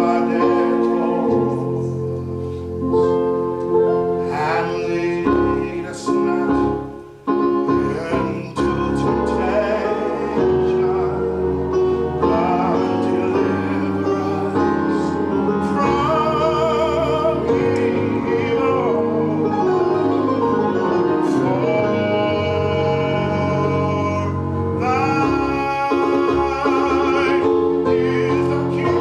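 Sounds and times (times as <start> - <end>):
man singing with vibrato: 0.0 - 2.2, 4.2 - 29.0
electronic keyboard chords: 0.0 - 29.0.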